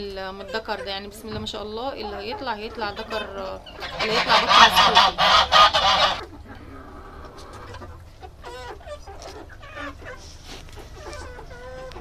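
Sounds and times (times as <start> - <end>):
chickens clucking: 0.0 - 12.0
geese honking: 2.1 - 6.3.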